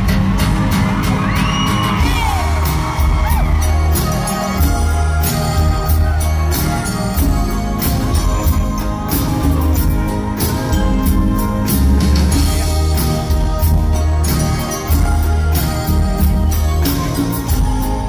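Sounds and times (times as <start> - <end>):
live band playing: 0.0 - 18.0
audience whooping and whistling: 1.0 - 5.7.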